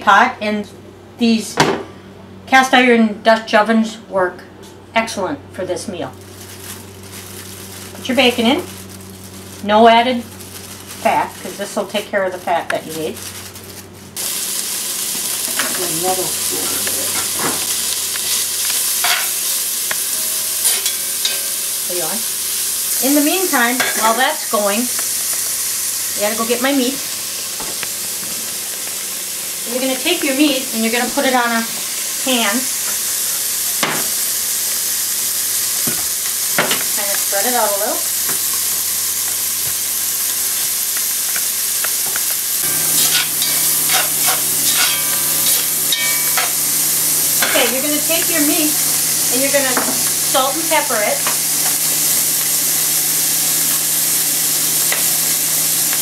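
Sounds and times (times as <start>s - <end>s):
bacon sizzling in a pot: 6.0s - 56.0s.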